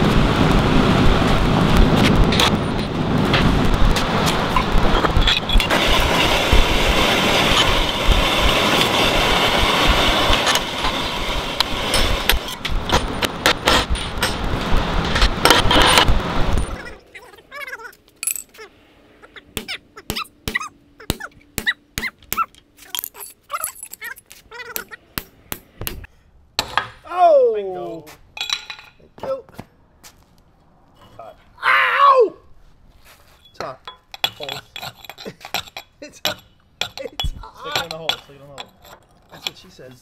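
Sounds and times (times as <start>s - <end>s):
gas torches burning: 0.0s - 17.4s.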